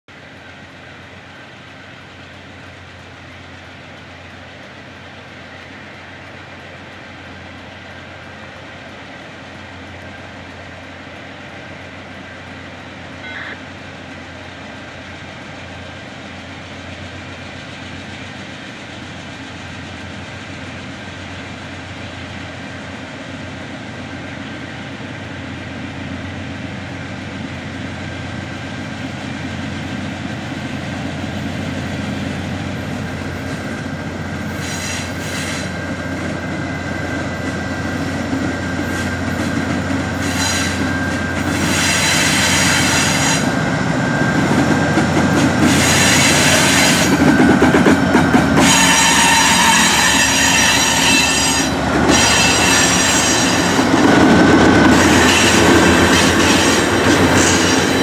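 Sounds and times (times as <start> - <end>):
diesel locomotive engine: 0.0 - 58.0
wheels rumbling on rails: 0.1 - 58.0.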